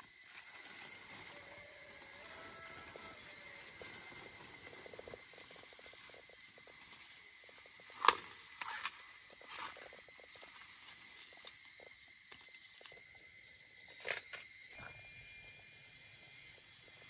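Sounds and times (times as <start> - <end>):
corn plants rustling: 0.0 - 11.6
corn ear snapping: 7.9 - 9.0.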